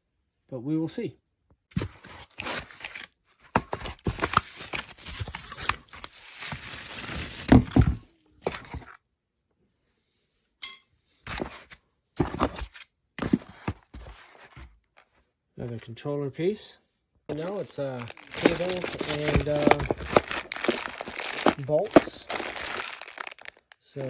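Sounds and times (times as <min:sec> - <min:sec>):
foam and cardboard rustling: 0:01.7 - 0:09.0, 0:11.3 - 0:14.8, 0:17.3 - 0:23.7.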